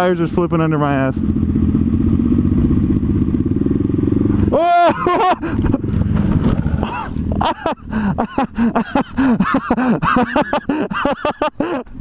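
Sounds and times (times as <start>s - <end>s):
person giving short wordless cries: 4.5s - 5.4s.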